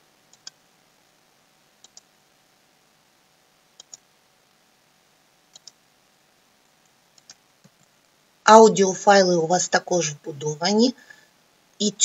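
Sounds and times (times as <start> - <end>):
faint computer mouse clicks: 0.3 - 0.6, 1.8 - 2.1, 3.8 - 4.0, 5.5 - 5.8, 6.8 - 8.0.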